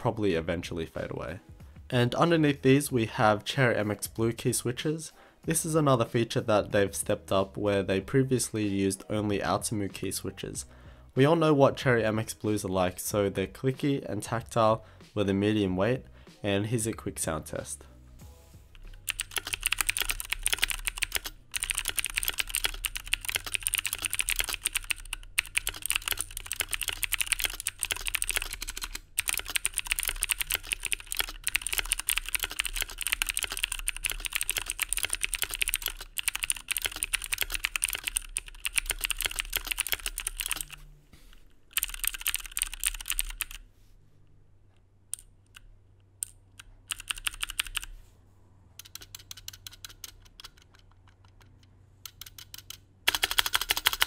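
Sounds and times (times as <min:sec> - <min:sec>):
mechanical keyboard typing: 0:18.8 - 0:40.8, 0:41.7 - 0:43.6, 0:45.2 - 0:47.9, 0:48.8 - 0:54.0.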